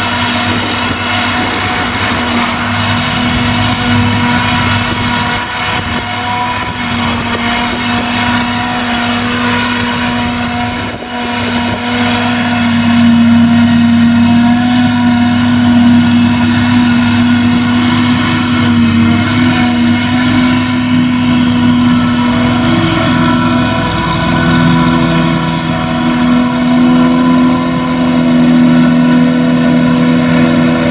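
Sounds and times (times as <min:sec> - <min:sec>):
forage harvester machine hum: 0:00.0 - 0:30.9.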